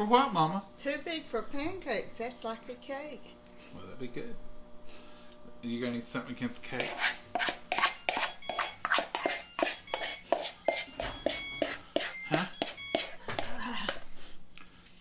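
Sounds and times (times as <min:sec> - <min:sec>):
spatula scraping plastic bowl: 0:06.6 - 0:13.2
spatula squeaking on bowl: 0:06.7 - 0:14.0.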